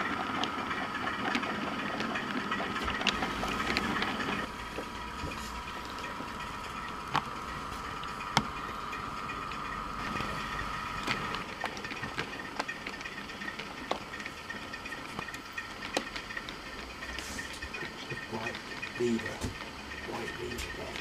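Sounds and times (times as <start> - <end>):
diesel engine sound from speaker: 17.0 - 21.0.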